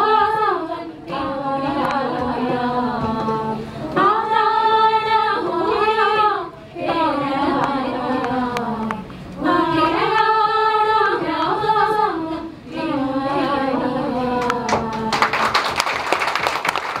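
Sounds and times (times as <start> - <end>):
women singing together: 0.0 - 15.5
applause: 14.7 - 17.0.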